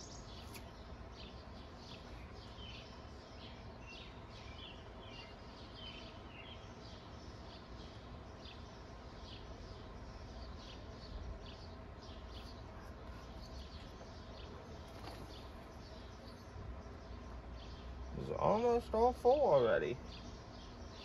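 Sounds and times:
birds chirping: 0.0s - 21.0s.

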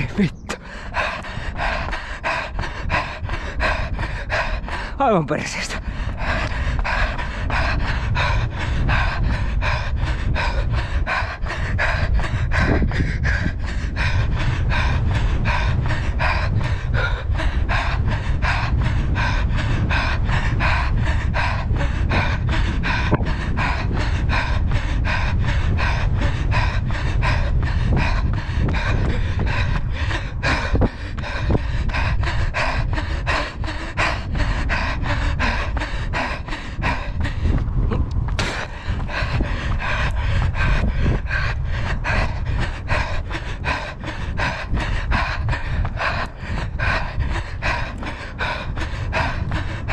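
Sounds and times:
low wind rumble on microphone: 0.0s - 49.9s
runner panting: 0.0s - 49.9s
running strides: 0.0s - 49.9s.

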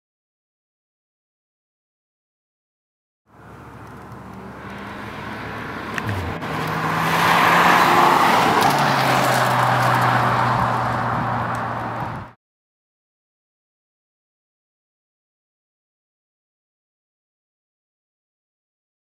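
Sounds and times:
tyre and road noise: 3.3s - 12.4s
car passing by: 3.4s - 12.4s
car engine note: 4.4s - 8.7s.

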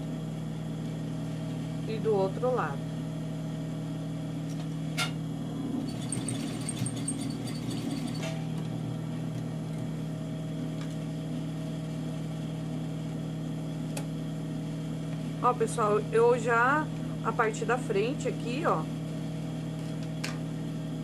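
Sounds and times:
sewing machine motor humming: 5.8s - 8.3s
sewing machine stitching: 5.8s - 8.3s.

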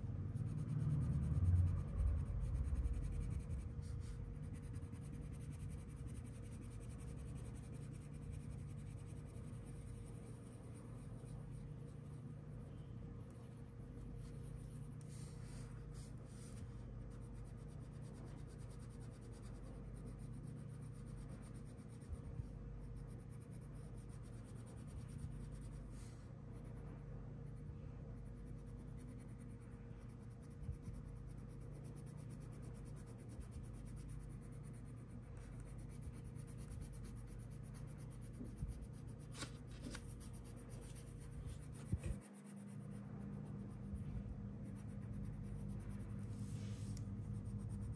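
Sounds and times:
low hum: 0.0s - 47.9s
crayon rubbing on paper: 0.4s - 12.2s, 28.2s - 44.0s, 44.6s - 47.9s.

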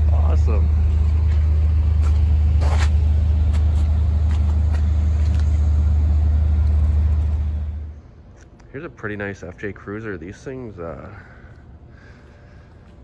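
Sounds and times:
loud low drone: 0.0s - 8.3s.

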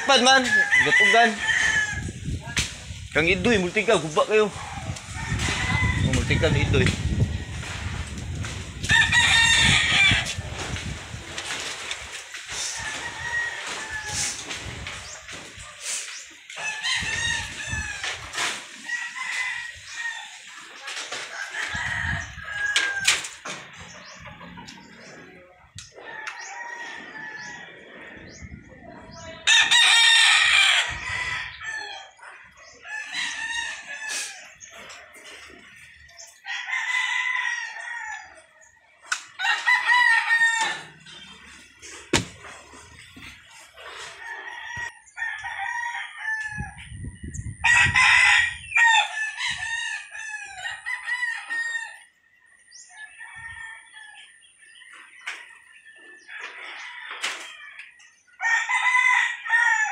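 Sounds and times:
rooster crowing: 0.0s - 2.2s, 4.5s - 7.8s, 8.8s - 10.4s, 12.7s - 14.5s, 39.4s - 41.1s, 47.6s - 52.1s, 58.4s - 59.9s
chicken clucking: 23.5s - 27.1s.

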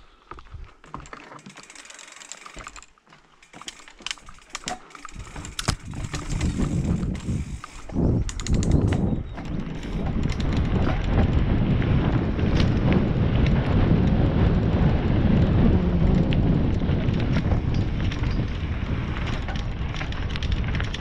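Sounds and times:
bike parts clicking and rattling: 0.3s - 14.2s, 16.6s - 21.0s
tyres rumbling on dirt: 1.0s - 21.0s
wind on microphone: 4.1s - 21.0s.

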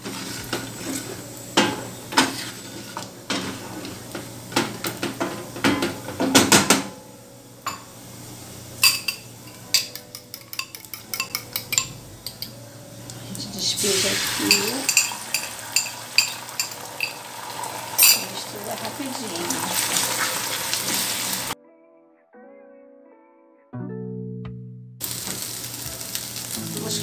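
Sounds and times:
wooden spoon scraping frying pan: 0.0s - 5.6s.

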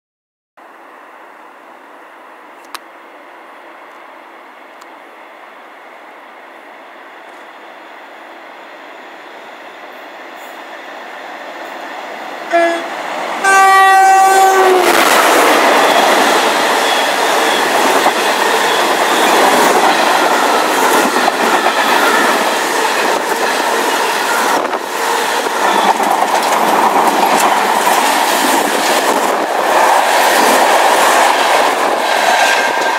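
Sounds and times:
train horn blasts: 12.5s - 15.0s.

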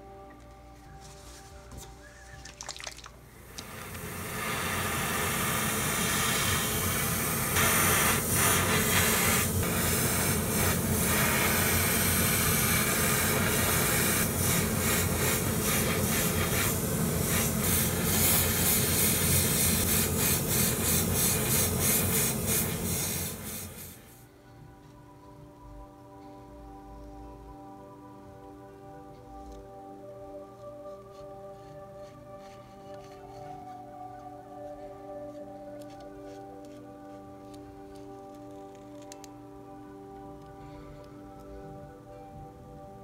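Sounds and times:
airbrush spraying hiss: 3.6s - 24.2s.

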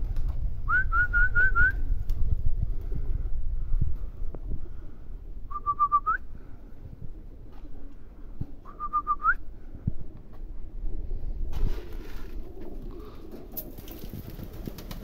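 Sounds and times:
low microphone rumble: 0.0s - 13.6s
person whistling: 0.7s - 1.8s, 5.5s - 6.3s, 8.7s - 9.4s.

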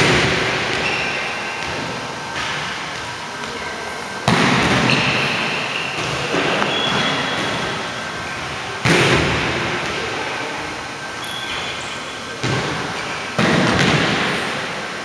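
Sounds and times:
volleyball smacks echoing: 4.2s - 7.8s, 8.8s - 10.0s, 12.4s - 14.4s.

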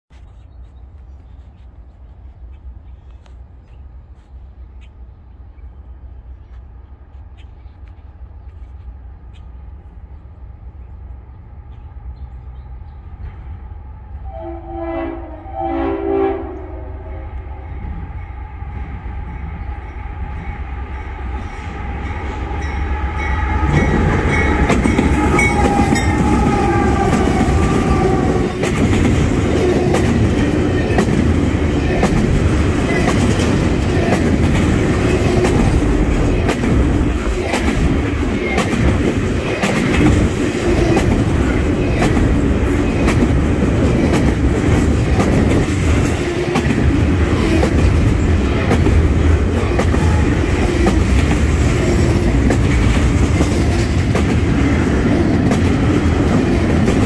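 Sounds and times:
freight train approaching: 0.1s - 57.0s
steel wheels on rail: 0.1s - 57.0s
train horn blasts: 14.2s - 30.0s.

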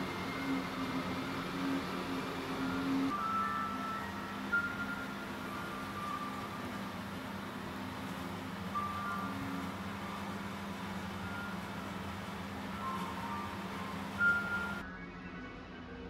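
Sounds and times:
soft ambient music: 0.0s - 16.0s.

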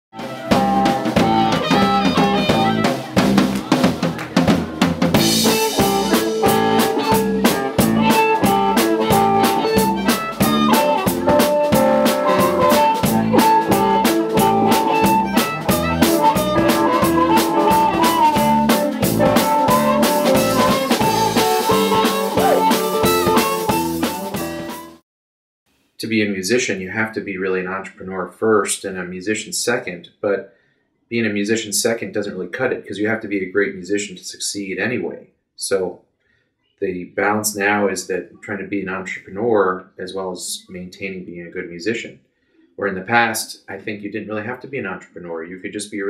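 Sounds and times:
bass guitar: 0.1s - 25.0s
drum kit beat: 0.1s - 25.0s
electric guitar: 0.2s - 25.0s.

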